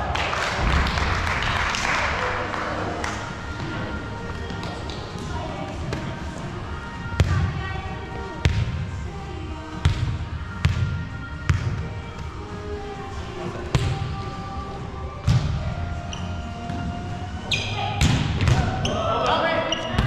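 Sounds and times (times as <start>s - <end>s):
volleyball slaps: 18.0s - 19.0s.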